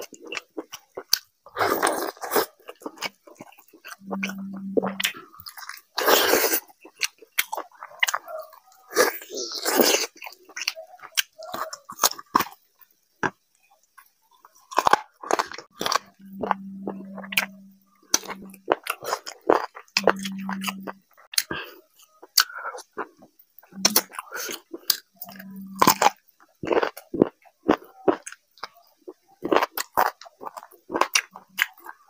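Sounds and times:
man chewing food: 0:00.0 - 0:32.0
low steady hum: 0:02.9 - 0:05.8, 0:15.2 - 0:26.2.

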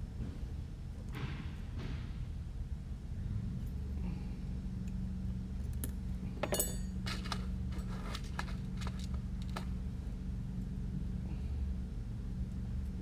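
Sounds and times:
steady low hum: 0:00.0 - 0:13.0
metal tweezers set down ringing: 0:06.4 - 0:06.9
small metal tools clinking: 0:06.4 - 0:09.6.

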